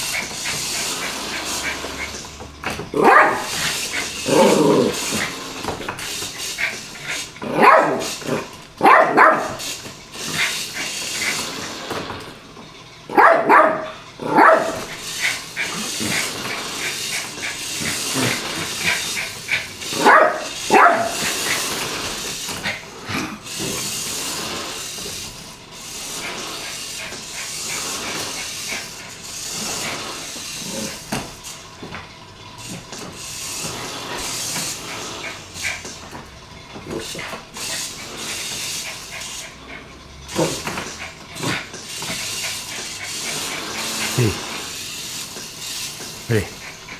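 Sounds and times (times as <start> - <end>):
small dog barking: 3.0 - 3.5, 7.5 - 8.0, 8.8 - 9.6, 13.1 - 14.8, 20.0 - 21.2.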